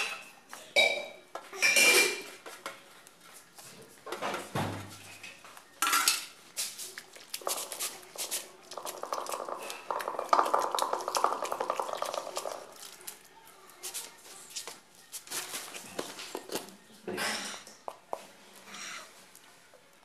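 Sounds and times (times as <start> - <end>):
spoon scraping metal bowl: 7.4 - 12.7.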